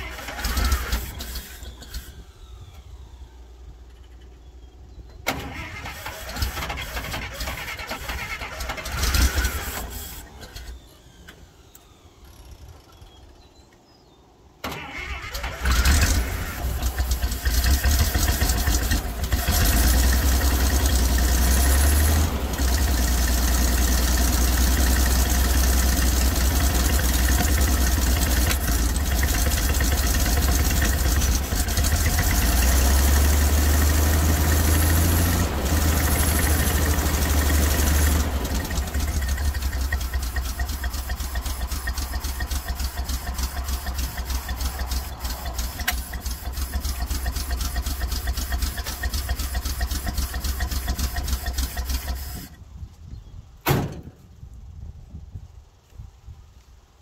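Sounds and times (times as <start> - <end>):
engine starter cranking: 0.0 - 4.4, 5.1 - 13.0, 14.6 - 52.6
engine running steadily: 15.4 - 52.7.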